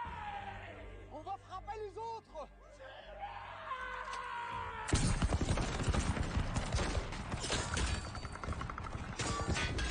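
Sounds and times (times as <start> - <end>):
volley of rifle fire: 4.9 - 9.9.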